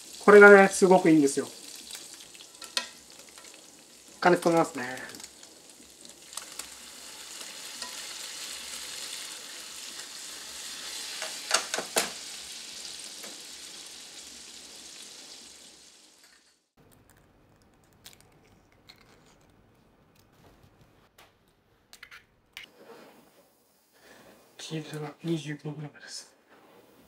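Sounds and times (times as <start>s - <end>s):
frying pan sizzling and bubbling: 0.0s - 16.7s.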